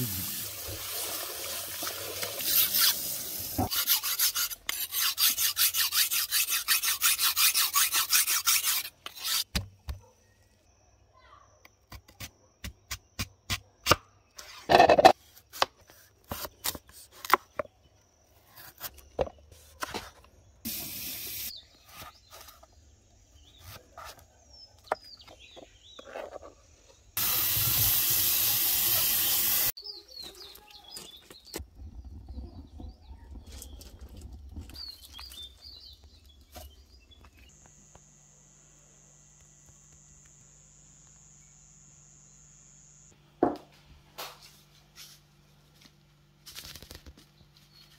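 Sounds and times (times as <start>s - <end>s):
loud steady hiss: 0.0s - 1.7s, 20.7s - 21.5s, 27.2s - 29.7s.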